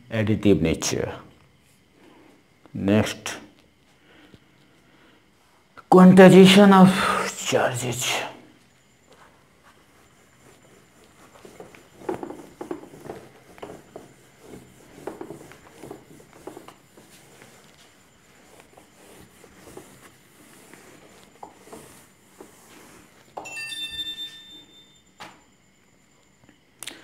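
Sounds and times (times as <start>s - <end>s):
eraser rubbing on whiteboard: 9.1s - 23.4s.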